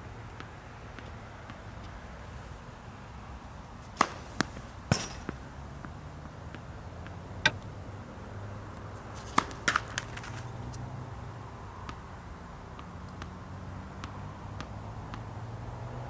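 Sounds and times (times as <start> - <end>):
tennis ball bouncing: 3.2 - 7.8, 8.7 - 10.8, 11.8 - 12.1, 12.8 - 15.4
racket striking tennis ball: 3.8 - 5.7, 6.5 - 7.6, 9.1 - 10.6.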